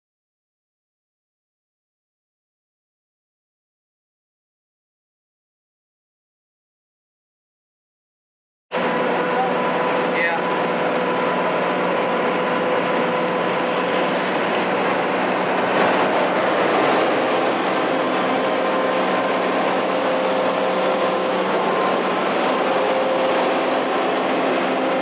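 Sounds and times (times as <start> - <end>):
bus engine running: 8.8 - 25.0
constant hum: 8.8 - 25.0
road and wind noise: 8.8 - 25.0.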